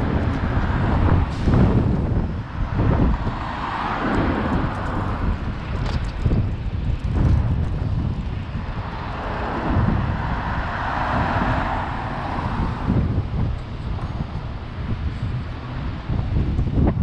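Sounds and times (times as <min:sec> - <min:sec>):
bus driving past: 0:00.0 - 0:16.8
wind buffeting microphone: 0:00.0 - 0:17.0.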